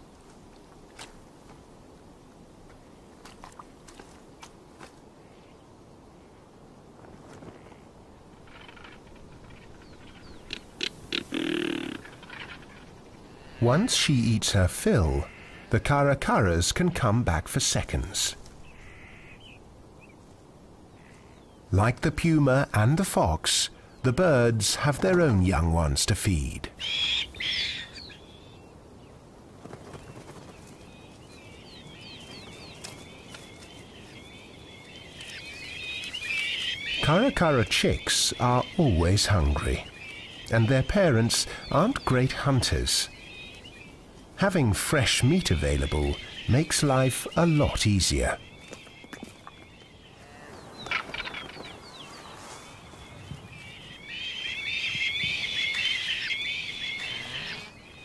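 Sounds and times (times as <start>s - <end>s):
birds calling and chattering: 7.3s - 58.0s
loud high bird call: 10.4s - 12.6s, 53.8s - 57.9s.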